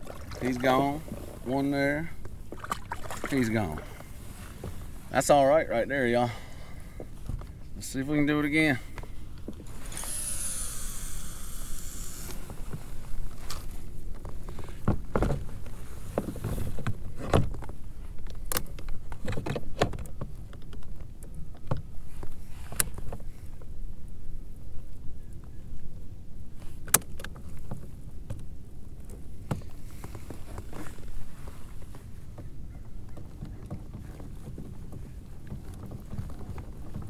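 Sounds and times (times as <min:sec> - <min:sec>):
gear knocking in kayak: 0:32.4 - 0:37.0.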